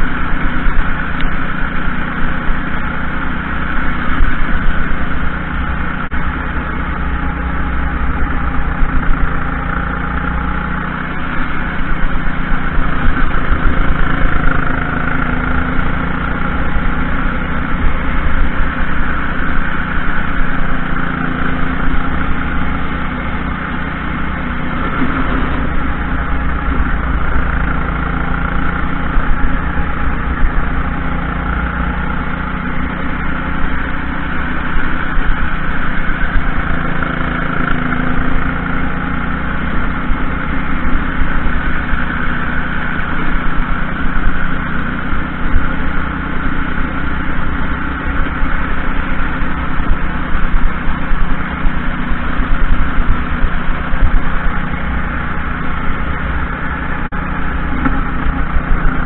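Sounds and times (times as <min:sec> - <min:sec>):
kart engine running hard: 0:00.0 - 0:59.0.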